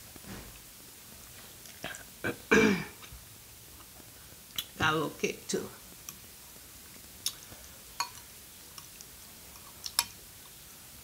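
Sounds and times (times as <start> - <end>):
quiet chewing: 1.3 - 2.1, 6.8 - 10.6.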